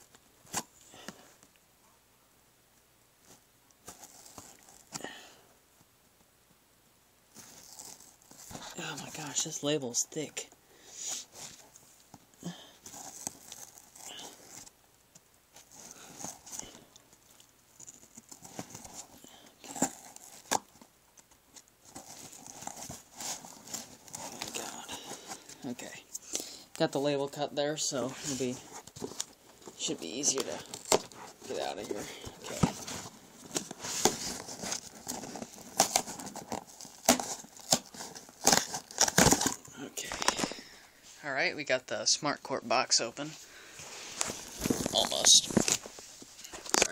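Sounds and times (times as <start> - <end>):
packing tape tearing: 17.8 - 20.9, 28.2 - 40.6
cardboard scraping and rustling: 21.8 - 25.8, 28.0 - 40.6, 43.8 - 46.9
knife cutting packing tape: 33.9 - 39.6.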